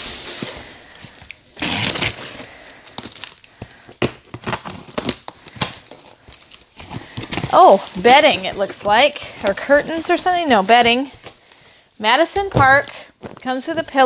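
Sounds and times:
knife slicing packing tape: 0:01.6 - 0:02.4
cardboard scraping and crackling: 0:04.0 - 0:11.3.

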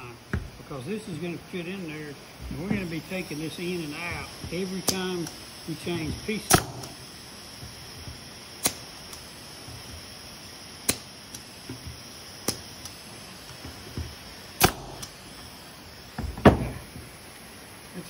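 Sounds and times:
nail gun shots: 0:06.4 - 0:07.0, 0:08.6 - 0:09.2, 0:14.6 - 0:15.2.

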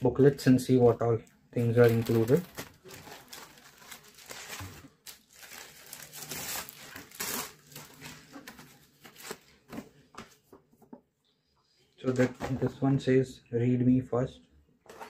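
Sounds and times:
plastic zip bag crinkling: 0:01.6 - 0:09.4
paper booklets rustling: 0:01.6 - 0:10.5.

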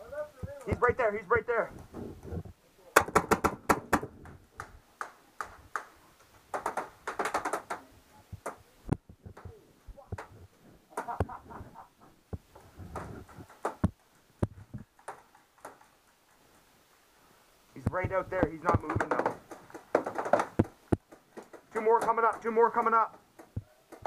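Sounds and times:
paintball markers firing: 0:03.0 - 0:04.1.

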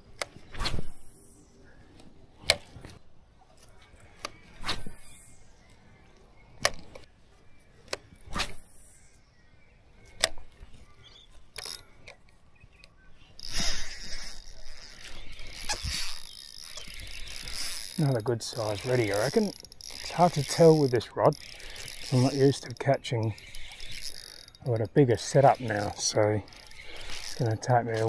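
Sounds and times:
fishing rod swishes: 0:04.6 - 0:05.1, 0:08.2 - 0:08.8
fishing reel clicks: 0:11.5 - 0:12.2, 0:13.4 - 0:28.0
spinning reel ratcheting whirr: 0:13.4 - 0:28.0.

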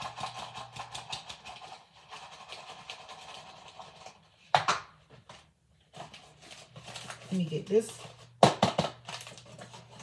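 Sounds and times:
paper wrapper crinkling: 0:05.9 - 0:08.4, 0:09.0 - 0:10.0.

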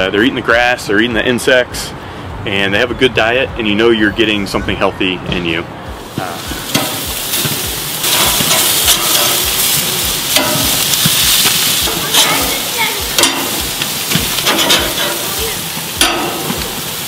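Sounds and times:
meat sizzling on a grill: 0:06.0 - 0:17.0.

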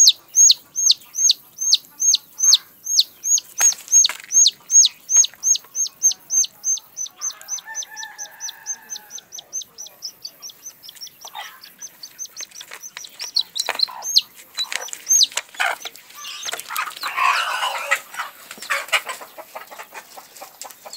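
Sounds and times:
hen calling: 0:00.0 - 0:19.1
chick peeping: 0:00.0 - 0:20.9
hens flapping wings and scuffling: 0:03.4 - 0:05.8, 0:11.8 - 0:20.9.

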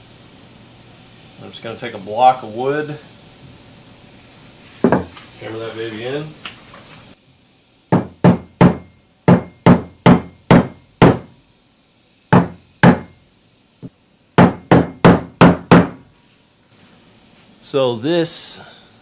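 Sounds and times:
hammer knocking on wooden block: 0:07.9 - 0:11.3, 0:12.3 - 0:13.1, 0:14.4 - 0:16.0.

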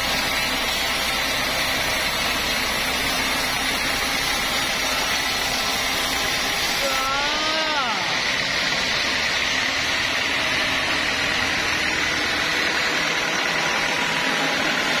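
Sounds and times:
band saw cutting wood: 0:00.0 - 0:15.0.

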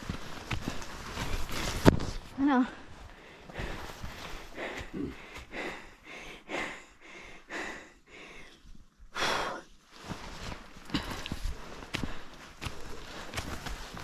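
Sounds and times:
person breathing hard: 0:03.0 - 0:09.7, 0:10.8 - 0:14.0.

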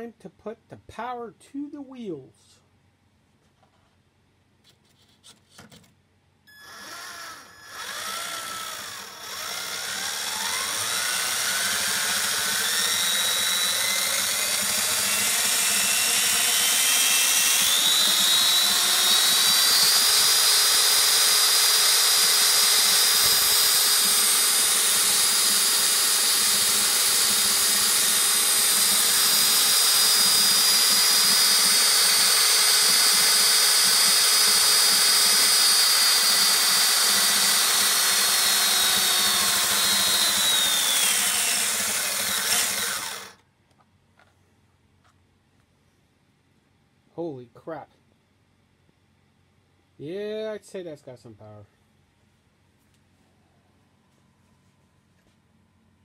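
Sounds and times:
electric motor whine: 0:06.5 - 0:43.4.

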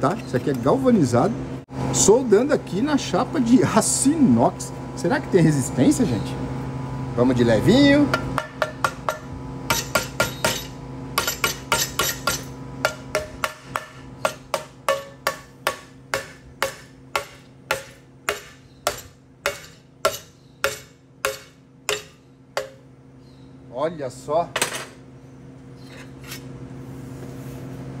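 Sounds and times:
metal taps on steel tube: 0:08.1 - 0:22.8.

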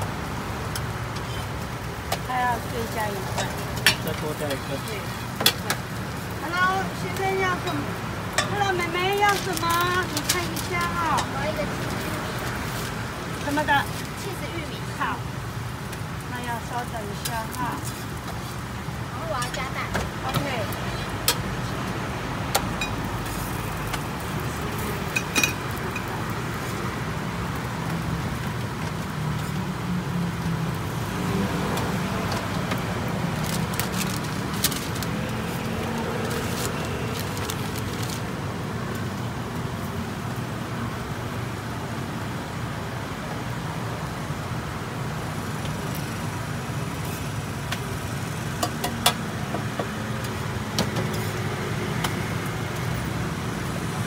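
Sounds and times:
roadside traffic rumble: 0:00.0 - 0:54.0
street stall noise: 0:00.0 - 0:54.0.

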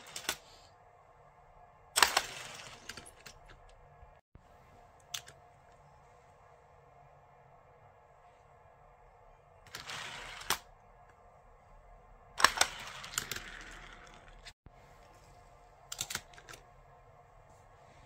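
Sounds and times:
toy cars rattling on plastic track: 0:02.0 - 0:03.4, 0:09.7 - 0:10.6, 0:12.4 - 0:14.5
toy car clack: 0:12.4 - 0:14.4.

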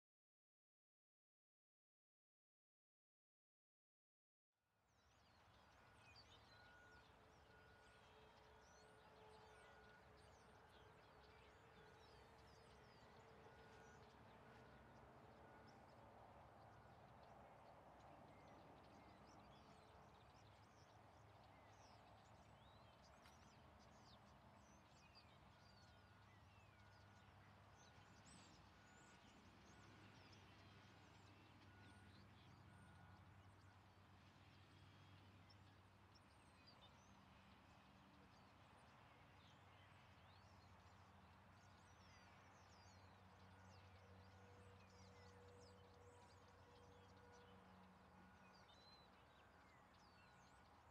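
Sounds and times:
small birds chirping: 0:16.6 - 0:33.8.

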